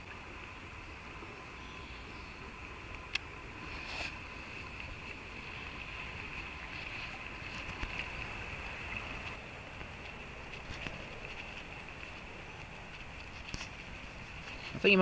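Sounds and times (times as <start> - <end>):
stream water running: 0.0 - 15.0
faint ticks: 2.8 - 3.3.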